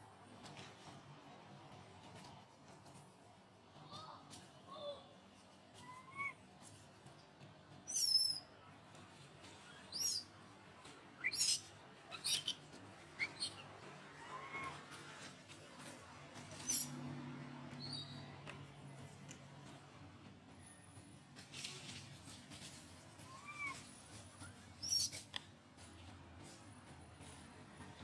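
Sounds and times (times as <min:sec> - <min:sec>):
high-pitched squeaky calls: 0:07.9 - 0:08.4, 0:09.8 - 0:10.3, 0:11.2 - 0:13.7, 0:16.6 - 0:17.0, 0:24.8 - 0:25.2.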